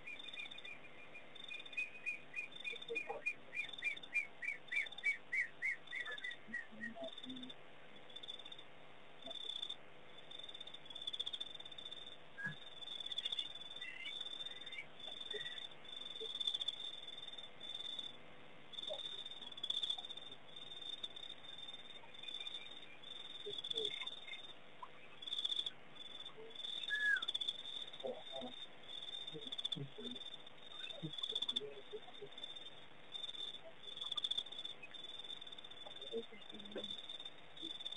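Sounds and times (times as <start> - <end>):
crickets chirping: 0.0 - 37.9.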